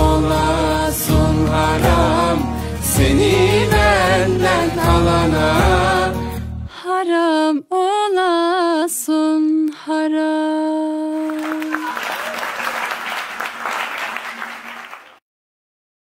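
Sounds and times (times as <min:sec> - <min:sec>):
group applauding: 0:01.1 - 0:02.6, 0:11.2 - 0:15.2
woman singing unaccompanied: 0:06.7 - 0:12.0.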